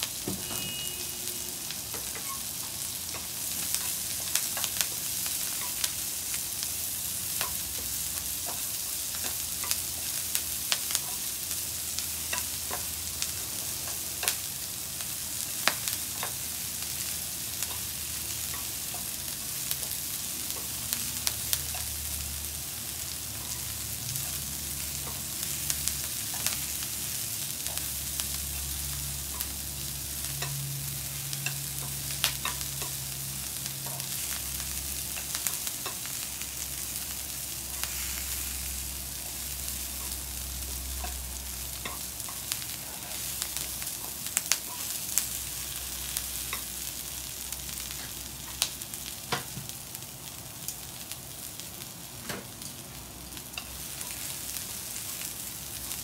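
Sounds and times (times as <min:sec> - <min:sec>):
kale sizzling in a frying pan: 0:00.0 - 0:56.0
chopsticks clicking against pan: 0:31.4 - 0:33.0.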